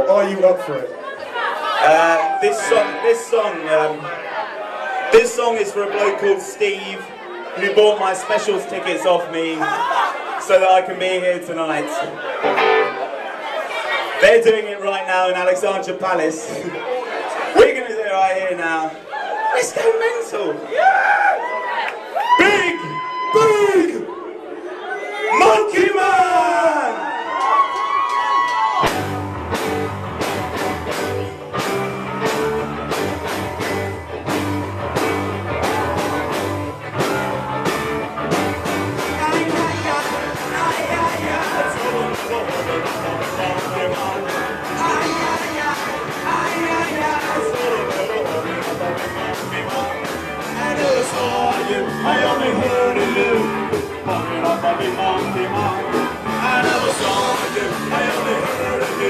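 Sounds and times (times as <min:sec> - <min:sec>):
rock band playing loudly: 0:12.2 - 0:14.2, 0:27.4 - 0:59.0
man singing: 0:39.1 - 0:59.0.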